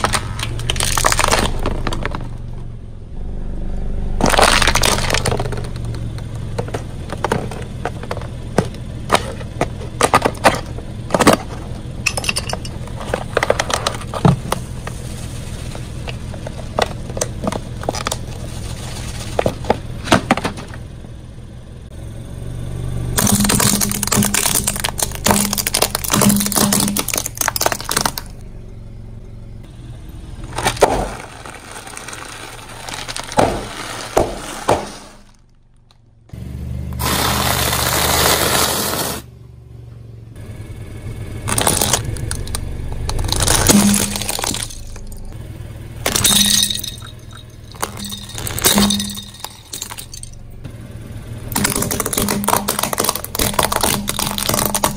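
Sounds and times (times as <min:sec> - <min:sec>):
tyre crushing plastic and glass: 0:00.0 - 0:02.6, 0:04.2 - 0:20.8, 0:23.2 - 0:28.4, 0:30.4 - 0:36.0, 0:37.0 - 0:39.0, 0:41.5 - 0:45.4, 0:46.0 - 0:50.4, 0:51.5 - 0:54.9.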